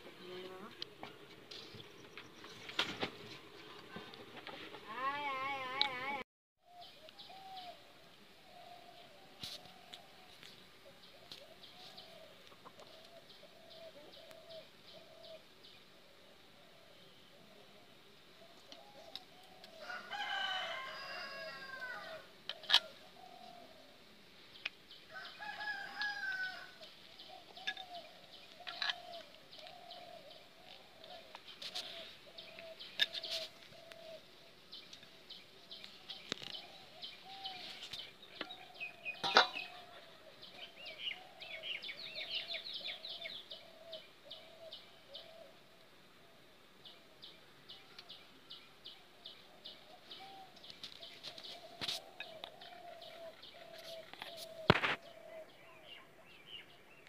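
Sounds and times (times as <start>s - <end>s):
small birds chirping: 21.9s - 57.0s.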